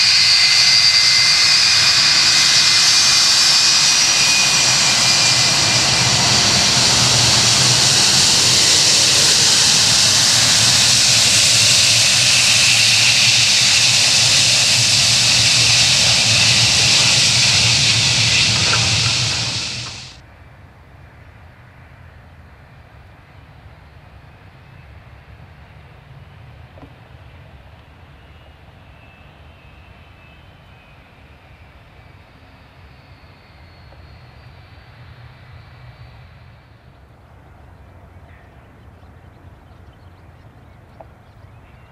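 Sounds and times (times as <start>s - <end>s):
jet engines whining: 0.0s - 20.2s.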